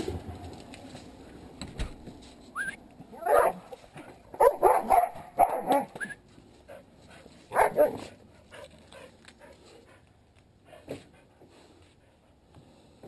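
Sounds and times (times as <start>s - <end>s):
dogs barking: 3.1s - 3.7s, 4.3s - 6.1s, 7.5s - 8.1s.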